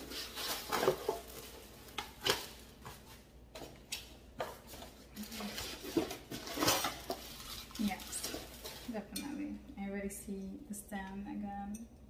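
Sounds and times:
packaging rustling: 0:00.0 - 0:09.0.

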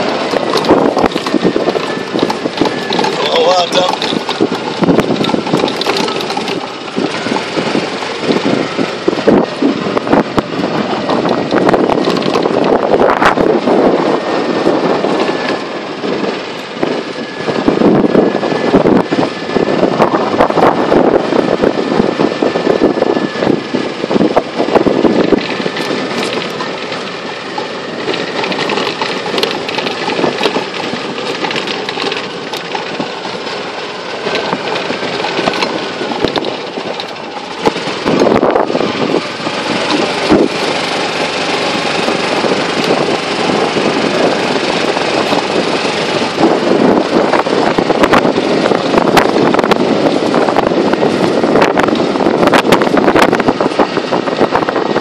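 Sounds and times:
knocks and rattles: 0:00.0 - 0:13.8, 0:24.7 - 0:54.6
golf cart driving: 0:00.0 - 0:55.0.

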